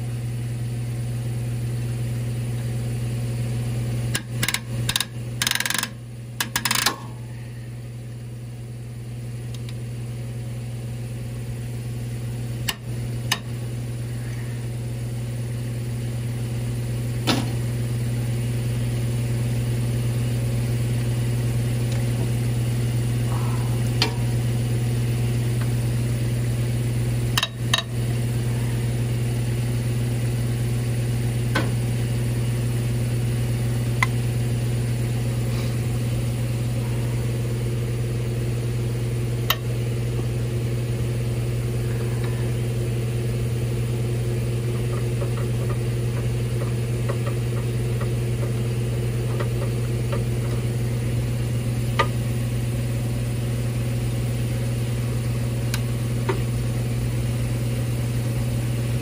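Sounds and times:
motor humming: 3.4 - 8.2, 11.9 - 59.0
socket wrench ticking: 4.2 - 7.0.

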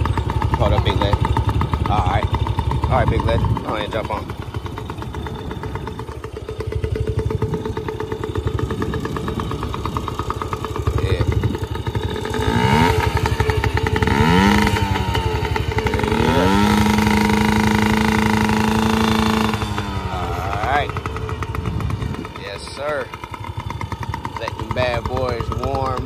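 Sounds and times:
two-stroke engine idling and revving: 0.0 - 26.0.

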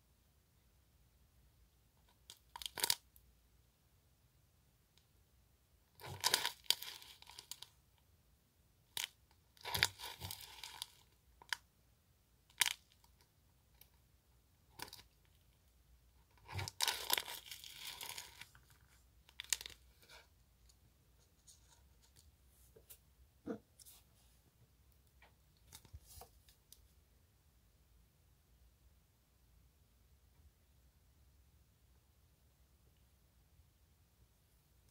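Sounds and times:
plastic bag crinkling: 6.0 - 7.7, 16.5 - 19.9.

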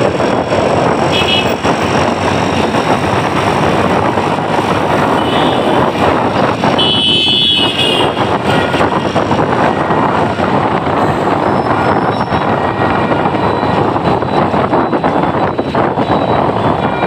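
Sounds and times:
engine and road noise: 0.0 - 17.0
vehicle horns honking: 1.1 - 1.6, 5.1 - 5.9, 6.7 - 8.9.

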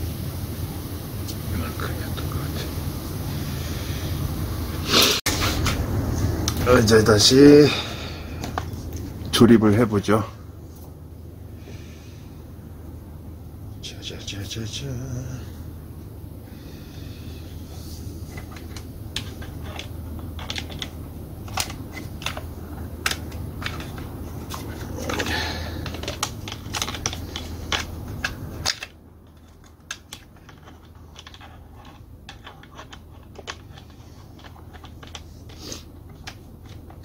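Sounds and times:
low steady hum: 0.0 - 37.0
plastic and metal parts clicking: 18.4 - 37.0.

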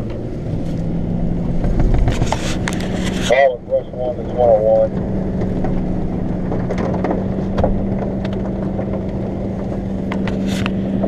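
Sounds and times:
truck engine running: 0.0 - 11.0
clicks and knocks in cab: 1.5 - 2.9, 4.9 - 11.0.

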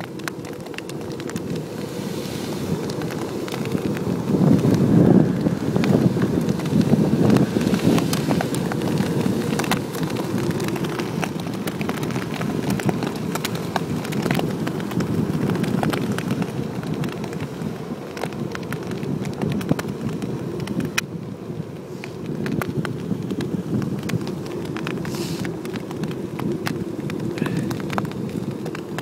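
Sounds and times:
shells crunching under wheels: 0.0 - 1.8
tyres rumbling over sand: 0.0 - 29.0.

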